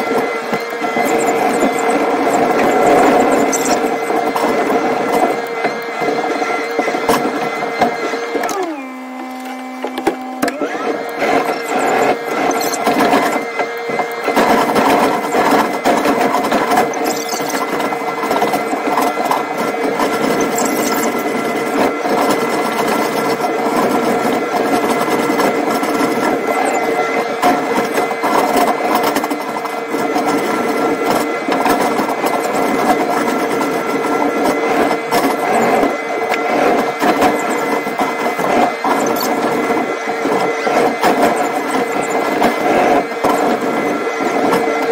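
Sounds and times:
hydraulic noise: 0.0s - 31.0s
excavator engine with high whine: 0.0s - 44.9s.

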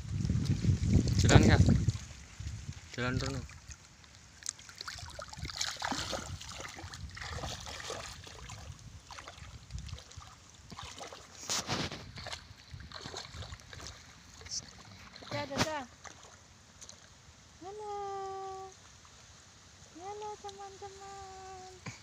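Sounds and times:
footsteps splashing through muddy water: 0.1s - 17.2s.

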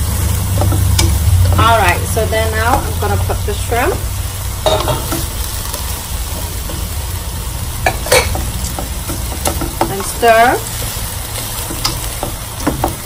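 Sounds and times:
filling sizzling in frying pan: 0.0s - 13.0s.

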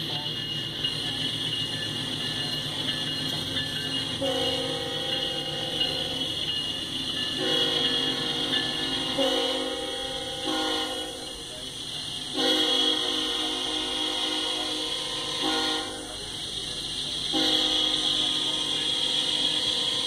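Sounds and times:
freight train rolling past: 0.0s - 20.0s
locomotive air horn blasts: 4.2s - 6.2s, 7.4s - 11.4s, 12.3s - 16.2s, 17.3s - 20.0s.

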